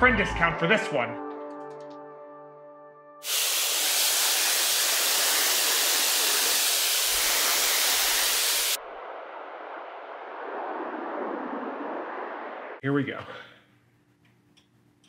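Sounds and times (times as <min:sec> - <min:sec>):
hose spraying jet of water: 0:03.2 - 0:08.8.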